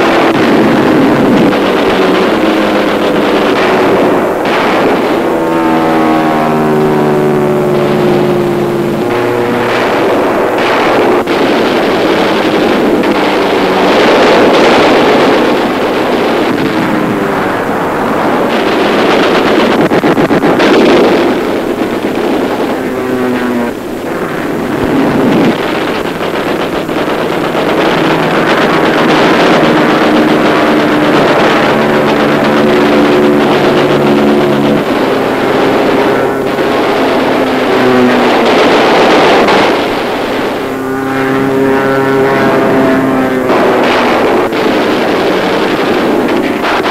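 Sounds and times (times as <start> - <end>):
propeller aircraft engine roar: 0.0 - 46.9.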